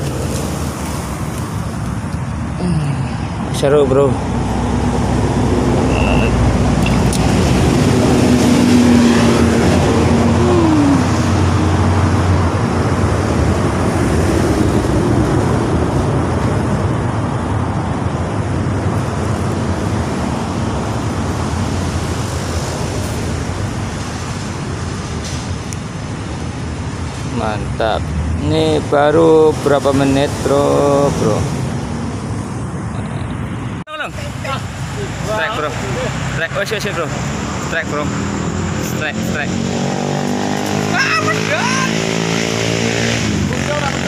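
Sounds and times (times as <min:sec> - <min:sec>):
road traffic going by: 0:00.0 - 0:44.0.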